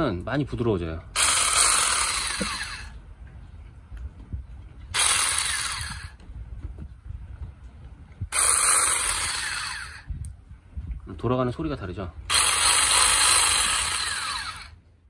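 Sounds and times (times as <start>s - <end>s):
mini chainsaw running: 1.2s - 2.9s, 4.9s - 6.2s, 8.3s - 10.1s, 12.3s - 14.8s.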